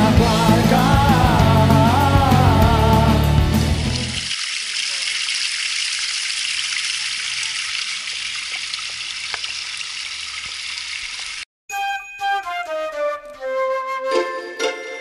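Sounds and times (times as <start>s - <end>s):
stream trickling over stones: 3.8s - 11.5s.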